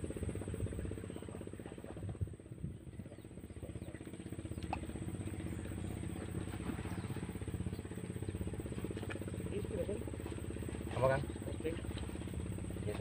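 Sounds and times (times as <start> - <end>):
boat engine puttering: 0.0 - 13.0.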